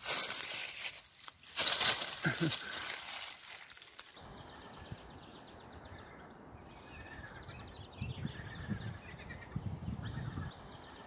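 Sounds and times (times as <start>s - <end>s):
rustling in dry leaves: 0.0s - 4.2s
songbirds trilling: 1.5s - 11.0s.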